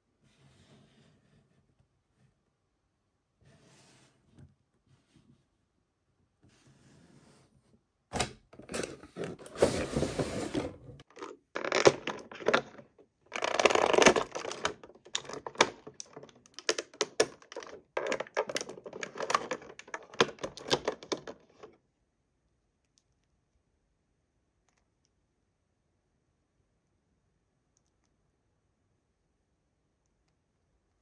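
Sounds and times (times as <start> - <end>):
packaging rustling and crackling: 11.0 - 21.7.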